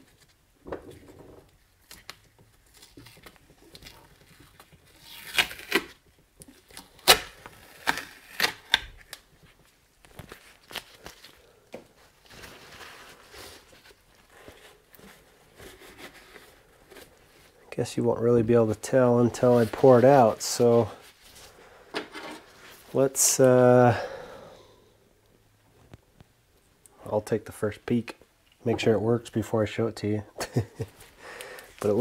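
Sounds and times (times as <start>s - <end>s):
tape ripping off metal: 1.8s - 6.0s, 6.6s - 9.2s
paper towel rustling: 12.0s - 17.6s, 19.0s - 21.6s.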